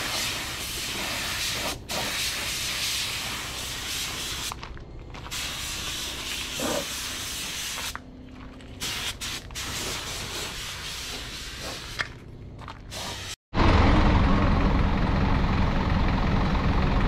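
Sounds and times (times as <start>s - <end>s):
paint spray gun hissing: 0.0s - 4.5s, 5.3s - 8.0s, 8.8s - 12.0s, 12.9s - 13.4s.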